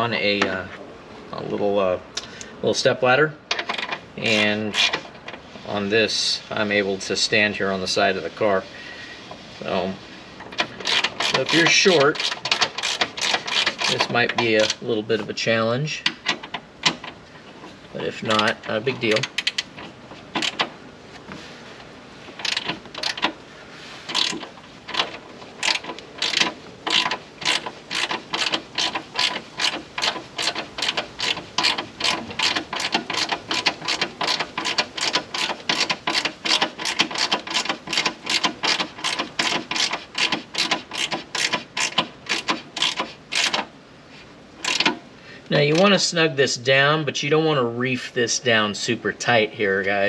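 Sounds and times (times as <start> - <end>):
hand ratchet clicking: 10.5 - 14.8, 18.3 - 20.7, 22.4 - 23.4, 24.1 - 43.7, 44.6 - 45.0.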